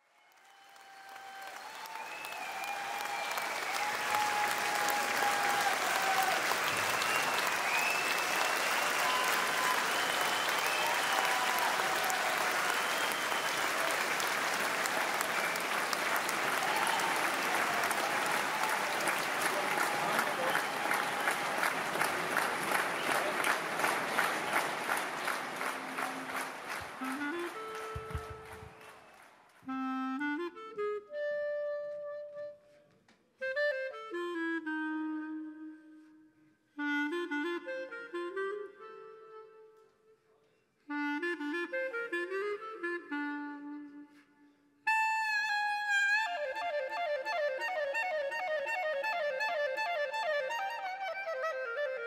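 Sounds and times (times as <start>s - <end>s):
audience applauding: 0.0s - 29.7s.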